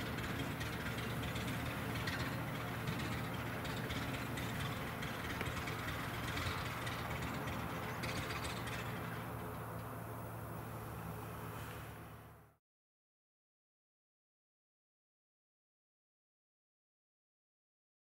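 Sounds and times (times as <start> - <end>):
propeller aircraft engine droning: 0.0 - 12.6.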